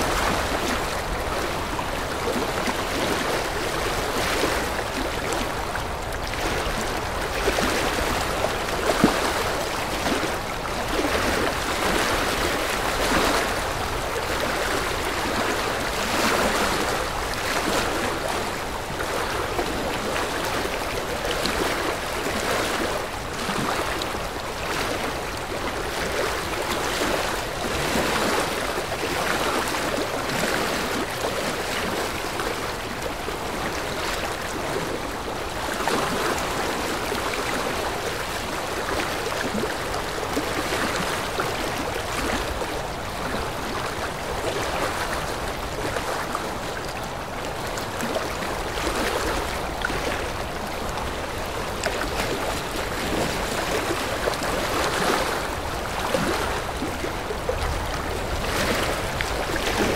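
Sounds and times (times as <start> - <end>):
sea water sloshing and splashing: 0.0 - 59.9.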